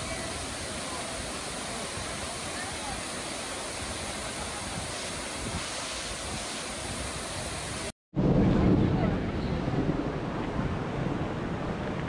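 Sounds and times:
waterfall roaring: 0.0 - 7.9.

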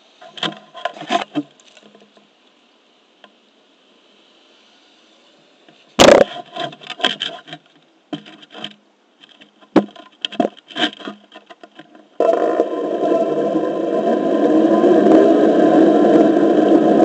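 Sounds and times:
board knocking and scraping: 6.0 - 12.2
board rolling noise: 6.0 - 17.0.

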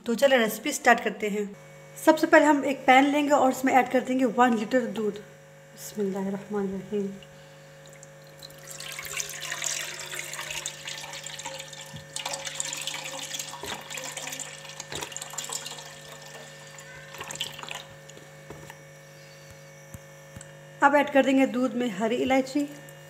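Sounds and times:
faint electrical hum: 0.0 - 23.0
milk pouring into a pan: 8.0 - 18.0.

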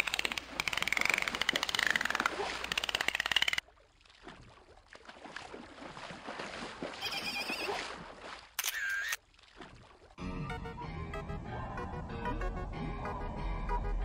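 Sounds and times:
fast buzz of clicks: 0.0 - 3.6.

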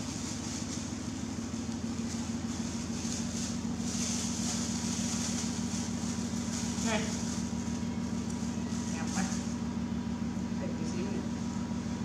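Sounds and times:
low machine hum: 0.0 - 12.0
plastic bag crinkling: 2.0 - 9.6.

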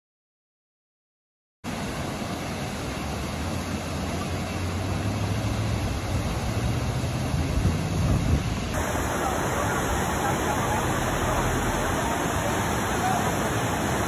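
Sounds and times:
waterfall rushing: 1.7 - 14.0
vehicle engine humming: 8.7 - 13.2.

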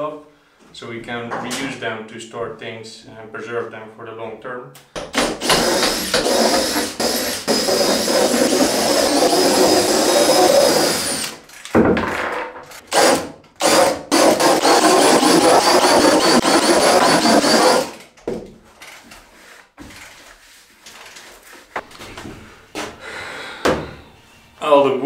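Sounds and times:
cordless drill boring plywood: 5.2 - 11.4, 12.9 - 18.0.

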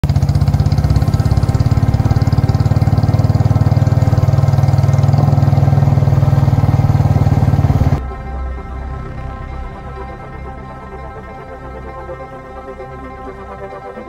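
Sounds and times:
vehicle engine idling: 0.0 - 8.1.

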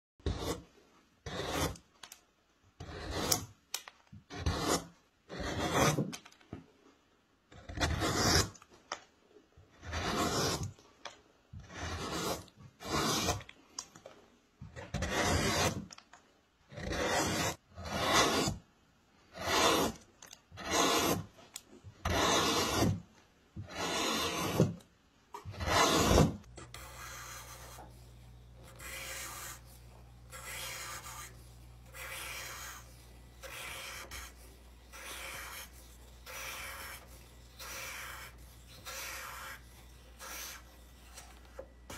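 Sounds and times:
gouge scraping wood: 0.2 - 1.9, 2.8 - 3.5, 4.3 - 6.2, 7.6 - 8.6, 9.7 - 10.8, 11.6 - 13.5, 14.8 - 16.0, 16.7 - 18.6, 19.3 - 21.4, 22.0 - 24.8, 25.4 - 41.9.

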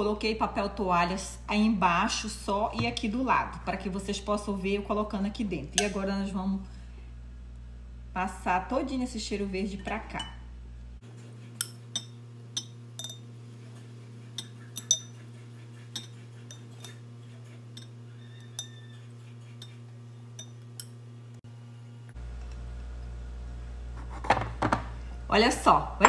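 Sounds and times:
spoon clinking against glass: 11.6 - 13.3, 14.4 - 15.2, 16.0 - 17.0, 17.7 - 18.9, 19.6 - 21.0.

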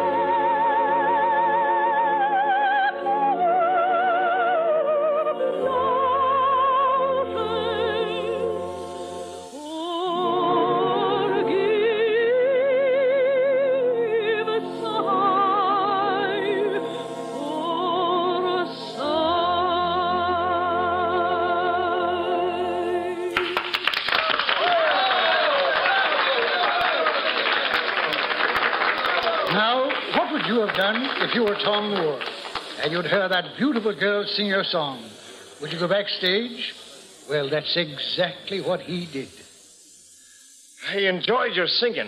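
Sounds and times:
woman singing operatically: 0.0 - 8.8, 9.5 - 23.3
singer breathing: 35.0 - 35.7, 39.3 - 40.9.

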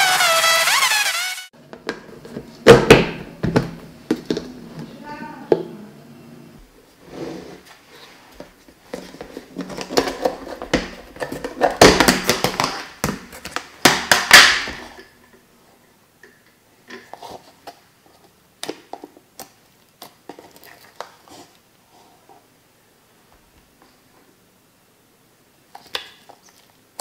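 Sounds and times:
plastic lid crackling and snapping: 9.6 - 15.1.

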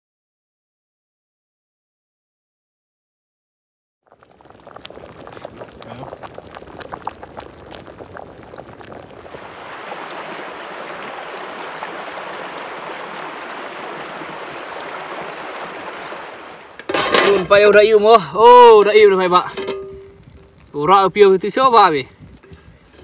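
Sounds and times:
food sizzling in hot oil: 4.1 - 17.8.

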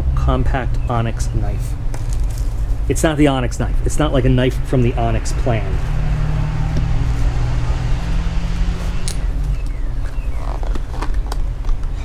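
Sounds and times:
air conditioning unit humming: 0.0 - 12.0
knife packaging clicks and rustles: 1.9 - 2.7, 9.6 - 12.0.

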